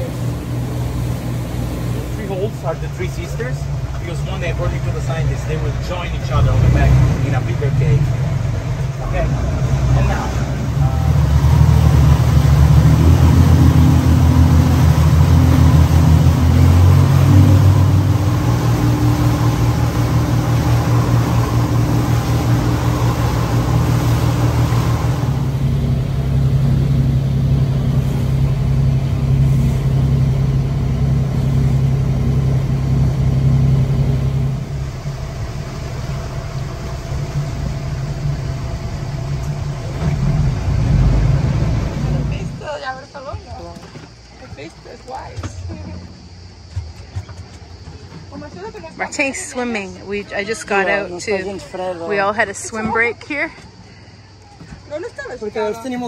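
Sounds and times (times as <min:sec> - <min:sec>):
motorboat engine running: 0:00.0 - 0:56.0
water and air noise: 0:00.0 - 0:56.0.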